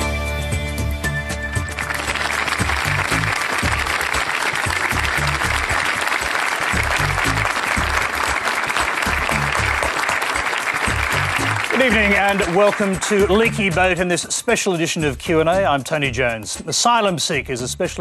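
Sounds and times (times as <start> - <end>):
television theme tune with bass: 0.0 - 18.0
audience applauding: 1.5 - 13.9.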